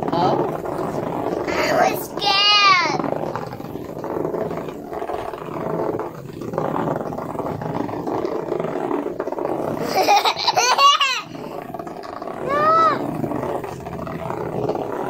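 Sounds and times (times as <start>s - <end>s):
robot bugs buzzing and rattling: 0.0s - 15.0s.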